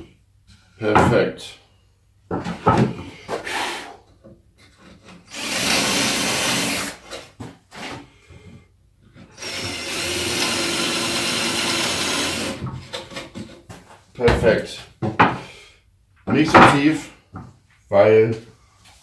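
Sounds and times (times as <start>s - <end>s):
knocks of wood being handled: 2.3s - 3.5s, 12.6s - 15.5s, 16.2s - 17.6s
cordless drill boring into wood: 5.3s - 7.0s, 9.3s - 12.6s.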